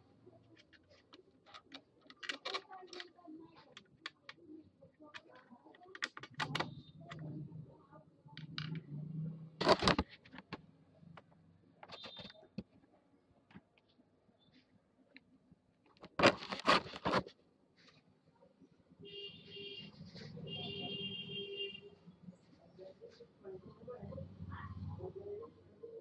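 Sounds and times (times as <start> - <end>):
plastic parts clicking and knocking: 0.4 - 7.4, 8.3 - 9.0, 9.6 - 12.8, 15.1 - 17.4
screwdriver being handled: 0.6 - 4.4, 16.0 - 17.3.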